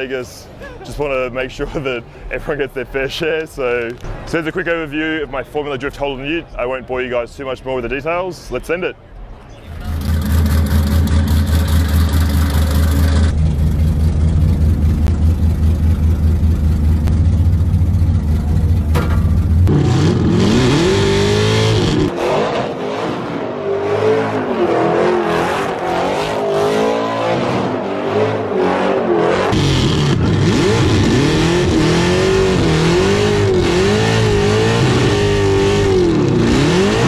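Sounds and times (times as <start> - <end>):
car engine idling and revving: 9.7 - 37.0.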